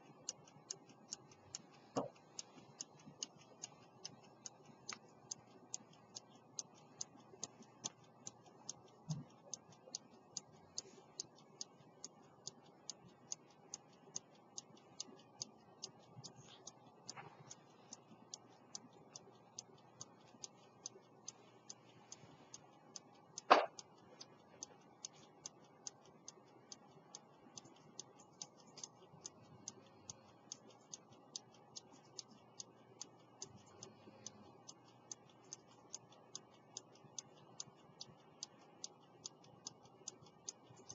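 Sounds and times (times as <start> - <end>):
pocket watch ticking: 0.0 - 40.9
sharp knock: 23.5 - 23.7.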